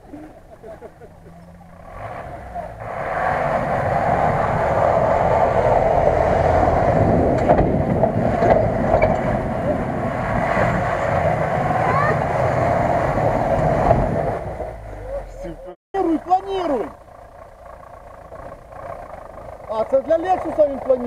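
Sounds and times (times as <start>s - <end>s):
truck engine working hard: 0.0s - 21.0s.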